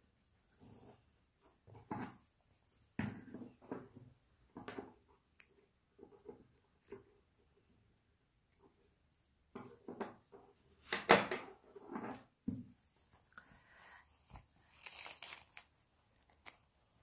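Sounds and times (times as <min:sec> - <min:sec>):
fabric rustling and crinkling: 0:12.8 - 0:17.0.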